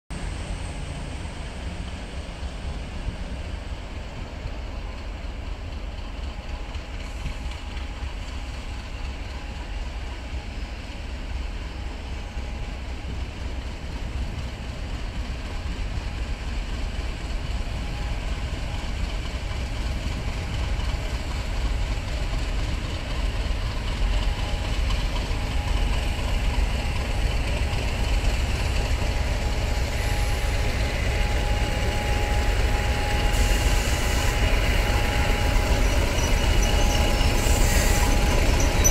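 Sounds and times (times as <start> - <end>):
diesel locomotive engine rumble: 0.1 - 38.9.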